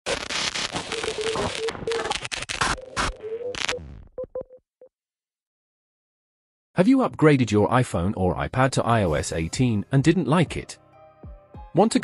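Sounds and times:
glitchy crackling static: 0.0 - 4.1.

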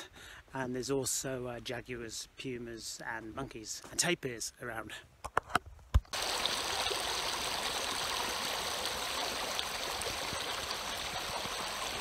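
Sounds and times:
stream running over rocks: 6.0 - 12.0.

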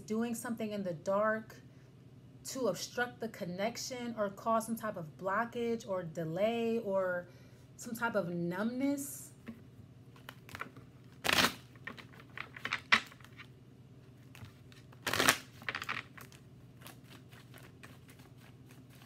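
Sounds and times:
cards shuffled by hand: 10.1 - 19.0.

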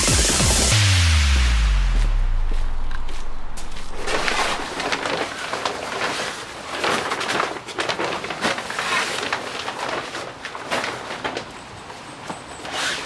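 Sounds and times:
electronic music: 0.0 - 5.0
light footsteps: 1.9 - 5.0
fabric cover rustling: 2.5 - 11.5.

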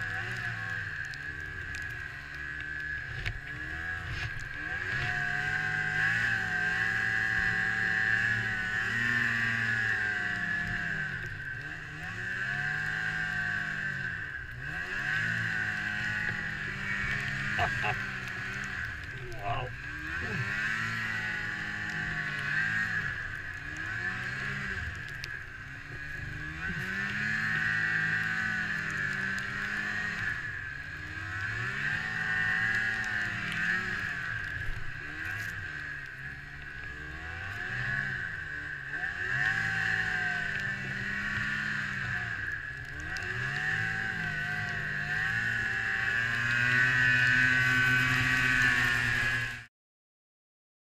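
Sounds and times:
snowmobile engine revving: 0.0 - 49.7.

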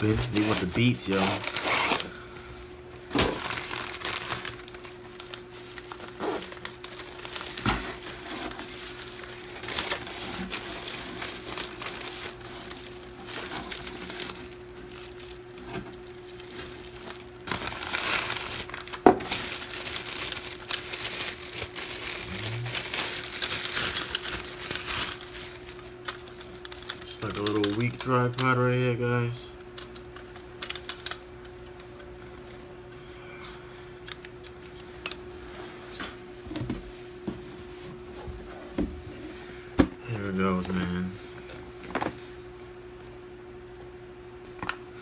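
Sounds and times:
plastic packaging crinkling: 0.0 - 2.2, 3.0 - 31.6.

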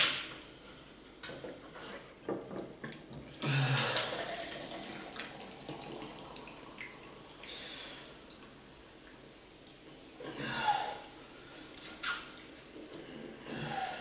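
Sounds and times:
soda pouring and fizzing: 3.8 - 7.7.

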